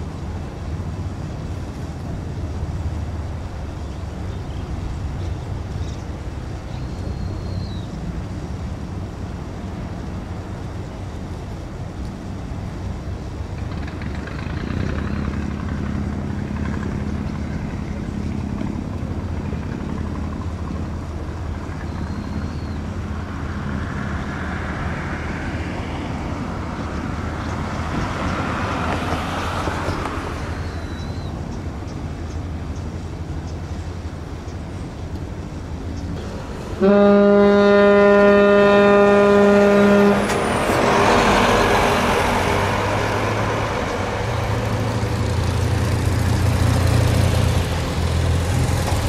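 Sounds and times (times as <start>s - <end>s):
rushing noise: 8.0s - 49.0s
low engine drone: 12.0s - 27.8s, 31.0s - 49.0s.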